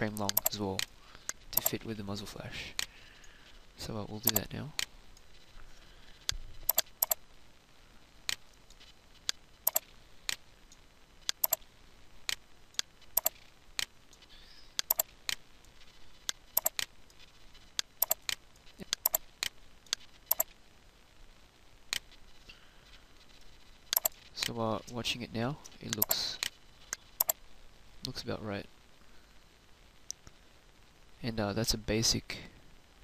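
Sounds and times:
computer mouse clicking: 0.2s - 1.8s, 4.2s - 4.9s, 6.2s - 7.2s, 9.2s - 10.4s, 11.2s - 11.6s, 12.3s - 13.9s, 14.8s - 15.4s, 16.2s - 16.9s, 17.8s - 20.5s, 23.9s - 24.5s, 25.9s - 27.4s.

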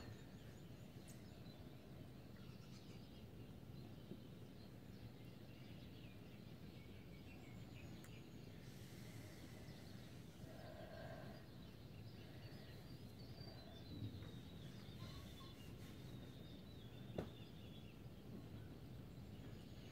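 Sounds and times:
bird chirps and calls: 7.4s - 18.1s.

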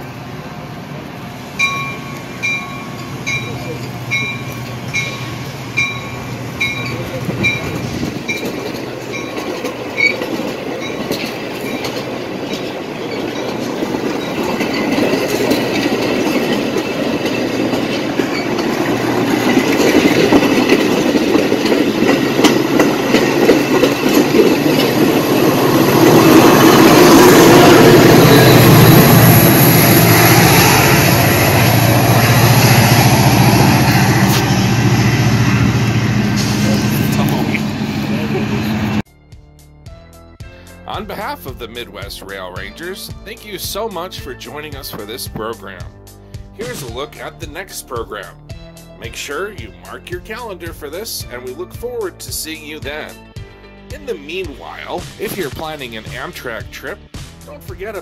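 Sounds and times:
train wheels clacking over joints: 1.6s - 30.6s
deep engine drone: 33.2s - 39.0s.

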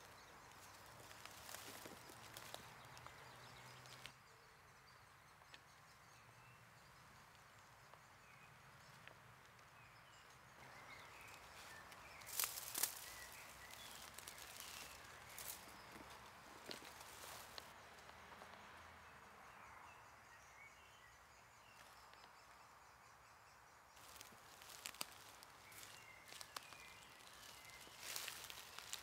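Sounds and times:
footsteps crackling through dry leaves: 0.0s - 4.1s, 10.9s - 17.7s, 24.0s - 29.0s.

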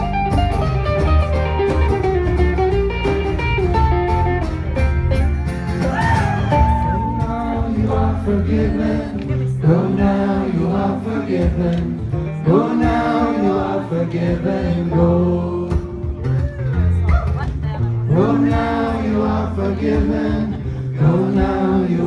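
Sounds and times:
acoustic band playing: 0.0s - 22.0s
banjo: 0.0s - 22.0s
several voices singing: 6.9s - 16.2s, 18.0s - 22.0s.

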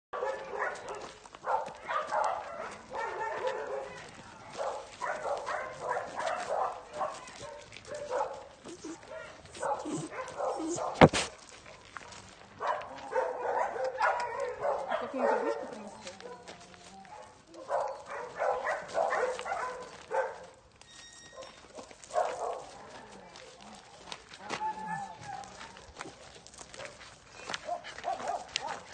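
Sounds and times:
young dog barking: 0.2s - 11.4s, 12.6s - 16.5s, 17.1s - 20.6s, 21.4s - 23.1s, 27.6s - 28.9s
steps on gravel: 0.2s - 28.9s
young dog yipping and whining: 8.6s - 11.3s, 20.9s - 21.9s.

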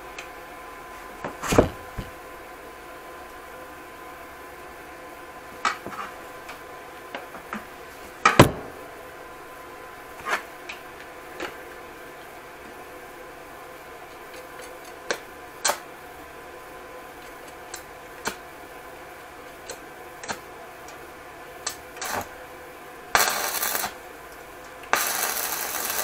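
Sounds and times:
electric welding crackle: 21.6s - 22.4s, 23.1s - 24.0s, 24.7s - 26.0s.

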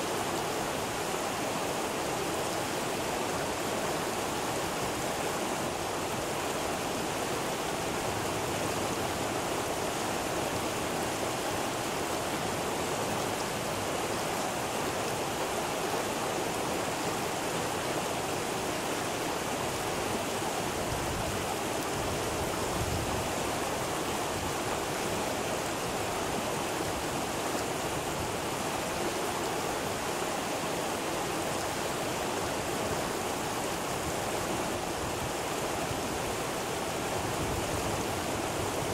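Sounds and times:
river rushing over rocks: 0.0s - 38.9s.

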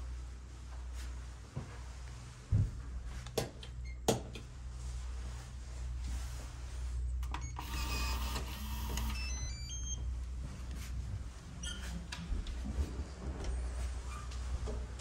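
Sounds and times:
door lock motor whirring: 7.5s - 9.4s.

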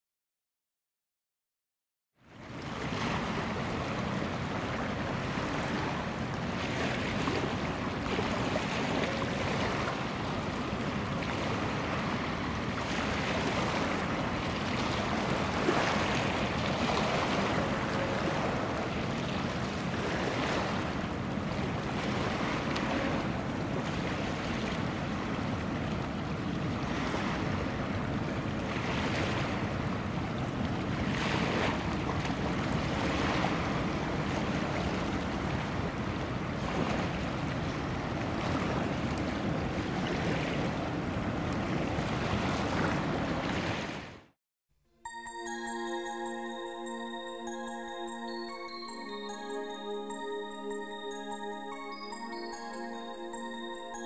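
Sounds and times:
waves lapping on rocks: 2.6s - 44.1s.

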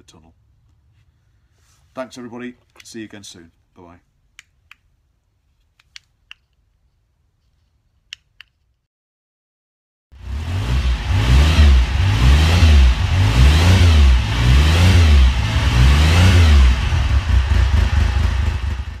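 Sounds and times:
motorcycle engine revving: 10.2s - 19.0s.

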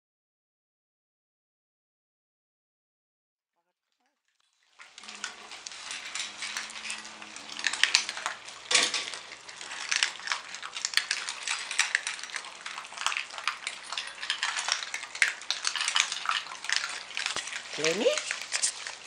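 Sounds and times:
dogs crunching dry kibble: 4.4s - 19.0s
metal bowls clinking: 4.8s - 19.0s.

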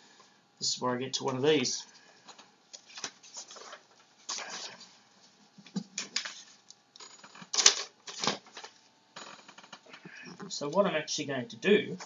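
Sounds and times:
paper rustling and sliding: 2.8s - 4.9s.

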